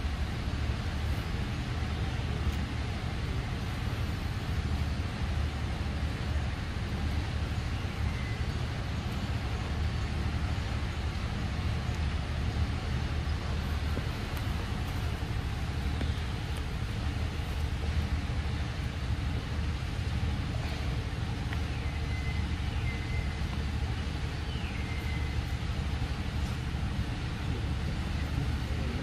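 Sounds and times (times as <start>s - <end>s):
steady low rumble: 0.0s - 29.0s
faint high whistling calls: 6.0s - 29.0s.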